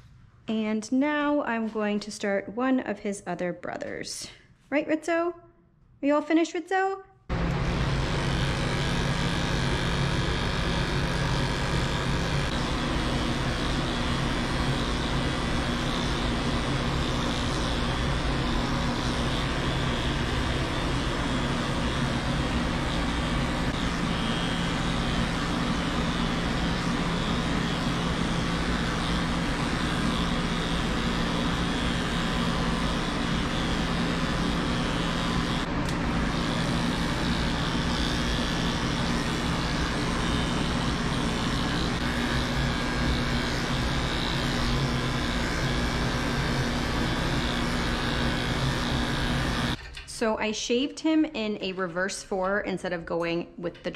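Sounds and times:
electric clipper humming: 7.3s - 49.8s.

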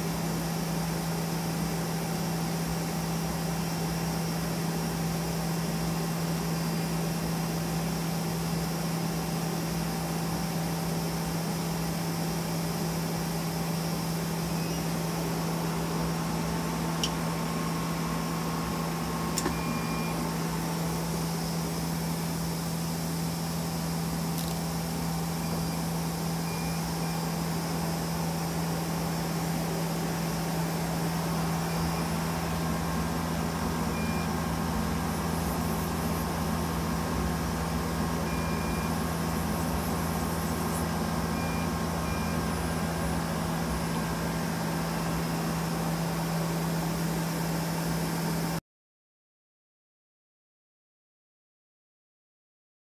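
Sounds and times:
machine hum: 0.0s - 48.6s
short high beeps: 19.4s - 20.2s.

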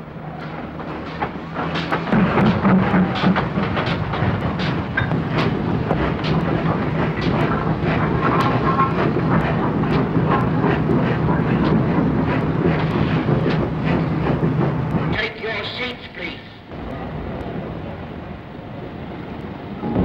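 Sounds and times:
steam locomotive rumbling: 0.0s - 20.0s
clanks and knocks: 0.4s - 15.3s.

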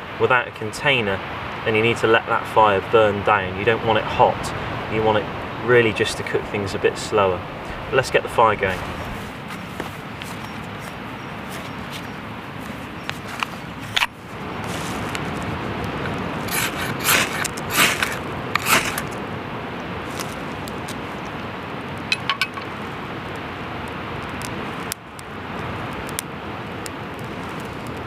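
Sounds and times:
ferro rod scraping on knife: 16.5s - 19.2s.

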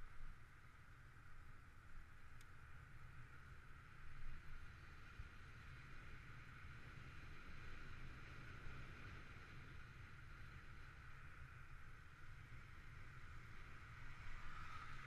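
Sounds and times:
wind rumble on microphone: 3.1s - 15.0s.

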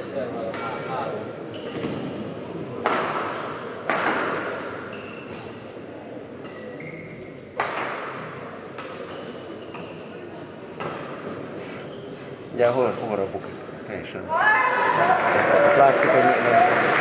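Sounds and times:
racket hitting shuttlecock: 2.8s - 4.8s, 7.6s - 9.8s.

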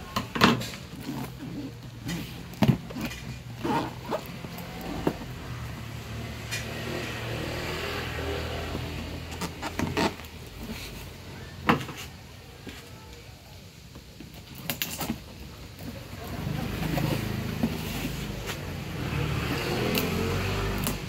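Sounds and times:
cardboard rubbing: 0.5s - 6.0s, 8.3s - 12.9s, 14.3s - 20.4s.

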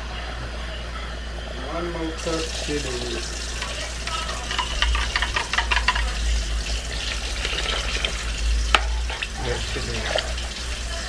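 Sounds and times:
broth crackling and splashing: 2.2s - 11.0s.

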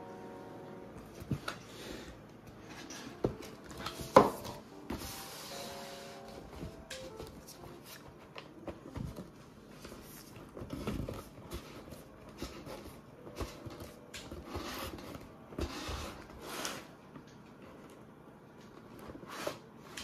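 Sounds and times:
cardboard scraping and rustling: 2.7s - 17.0s.

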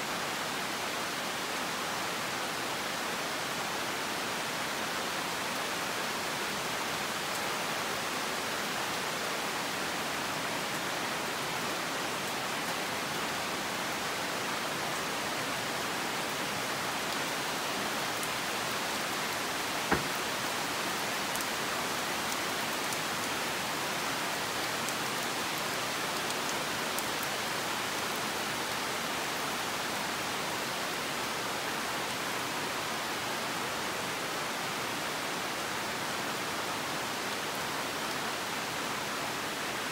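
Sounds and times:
rain on foliage: 0.0s - 39.9s
sharp tap: 19.9s - 20.2s.

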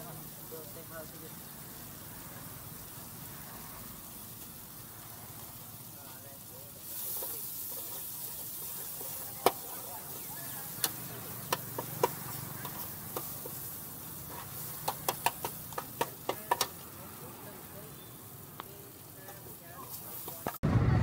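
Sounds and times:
noodles sizzling on a hot pan: 0.0s - 20.6s.

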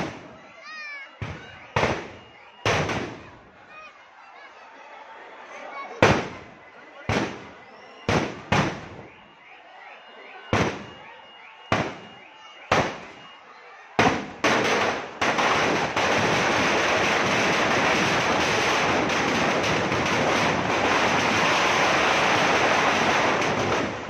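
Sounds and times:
firecrackers banging and crackling: 0.0s - 0.4s, 1.2s - 3.4s, 6.0s - 9.2s, 10.5s - 11.1s, 11.7s - 13.3s, 14.0s - 24.0s.

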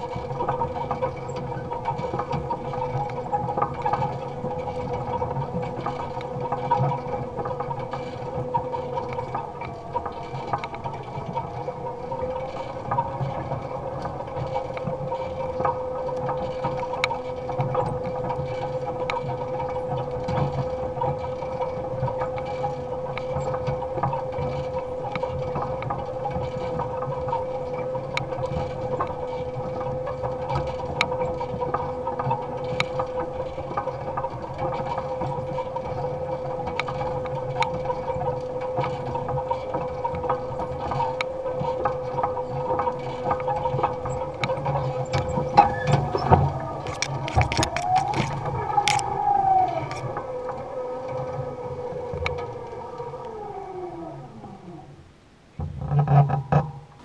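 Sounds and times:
electric motor whine: 40.8s - 55.1s
clicks and rattles: 41.9s - 50.3s.

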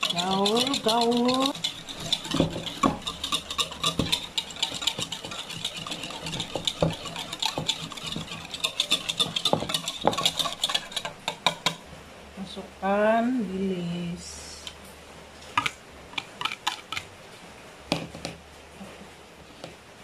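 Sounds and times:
whisk clicking against bowl: 0.0s - 11.8s, 15.6s - 17.1s.

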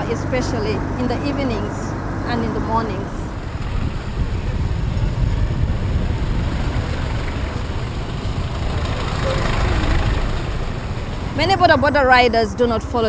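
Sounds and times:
motorcycle engine rumble: 0.0s - 13.0s
rushing air: 3.2s - 11.4s.

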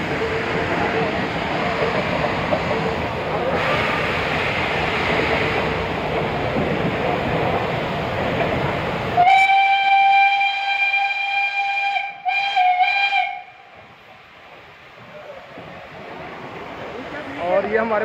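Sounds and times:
steam hissing: 0.0s - 18.0s
steam whistle blast: 9.2s - 13.6s.

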